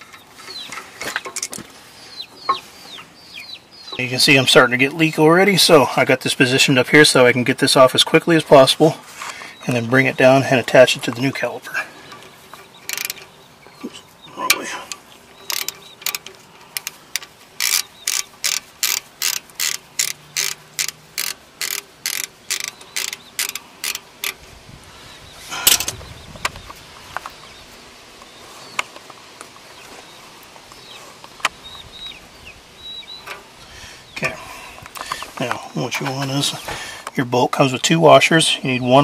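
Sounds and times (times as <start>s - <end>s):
socket ratchet clicking: 12.9s - 13.3s, 15.4s - 24.4s.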